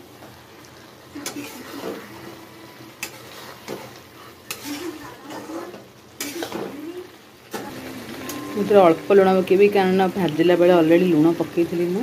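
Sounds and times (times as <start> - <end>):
curry sizzling faintly: 0.0 - 12.0
ladle stirring and scraping: 1.2 - 6.9.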